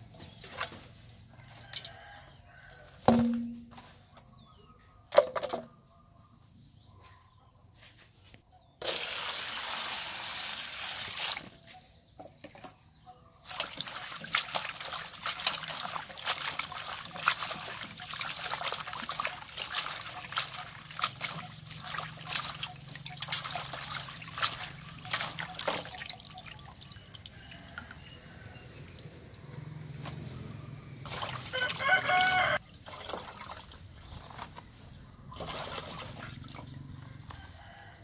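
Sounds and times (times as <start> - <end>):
water poured into a metal basin: 8.8 - 11.5, 13.4 - 29.1, 31.0 - 33.9
greens dripping water: 13.4 - 29.4
hands splashing greens in water: 13.5 - 27.3, 31.0 - 34.4, 35.3 - 36.8.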